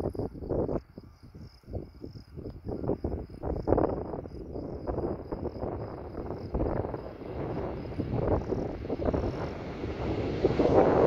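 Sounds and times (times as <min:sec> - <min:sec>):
crickets chirping: 0:00.0 - 0:11.0
wind buffeting microphone: 0:00.0 - 0:11.0
jet plane landing: 0:04.1 - 0:11.0.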